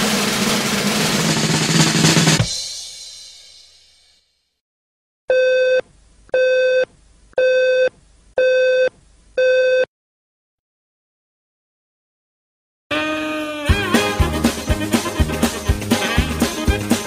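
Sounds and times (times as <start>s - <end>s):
telephone busy signal beeps: 5.3s - 5.8s, 6.4s - 9.9s.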